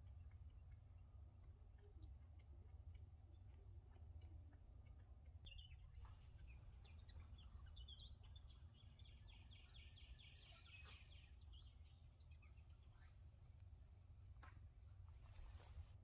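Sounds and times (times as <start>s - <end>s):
low background hum: 0.0s - 16.0s
faint bird chirps: 1.8s - 13.9s
rapid bird trill: 5.4s - 13.2s.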